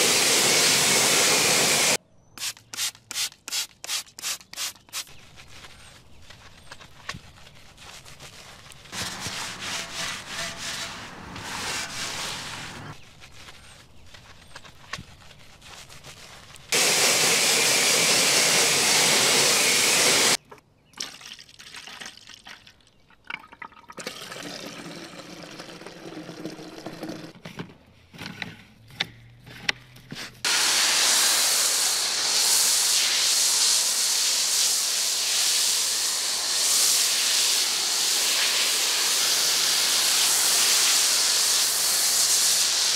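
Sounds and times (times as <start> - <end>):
pressure washer spraying: 0.0 - 4.8, 9.0 - 13.0, 16.8 - 20.4, 30.5 - 42.9.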